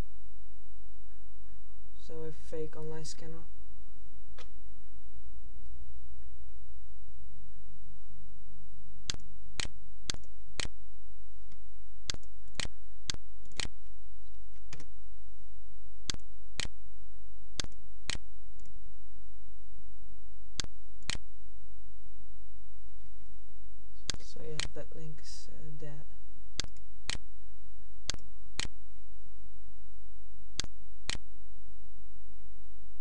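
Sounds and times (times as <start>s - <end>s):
low hum: 0.0s - 33.0s
computer mouse clicking: 9.1s - 10.7s, 13.4s - 13.7s, 17.6s - 18.7s, 26.6s - 27.2s.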